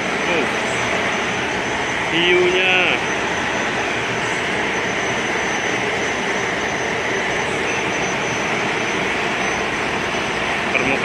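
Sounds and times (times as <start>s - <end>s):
faint high whine: 0.0s - 11.0s
machinery drone: 0.0s - 11.0s.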